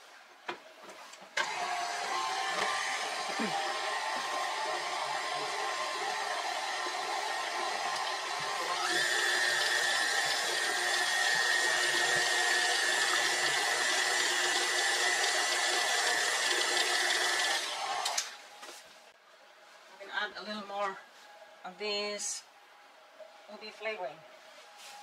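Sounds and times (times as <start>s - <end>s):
electric mixer whining: 1.4s - 18.3s.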